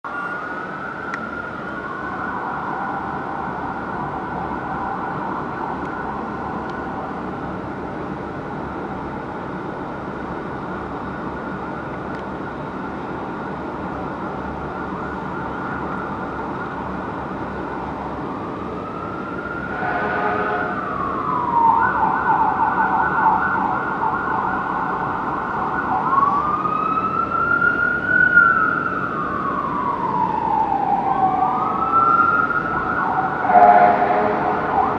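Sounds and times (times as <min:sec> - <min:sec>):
fire engine siren: 0:00.1 - 0:08.3, 0:09.7 - 0:34.9
horn blast: 0:19.7 - 0:20.9, 0:33.4 - 0:34.9.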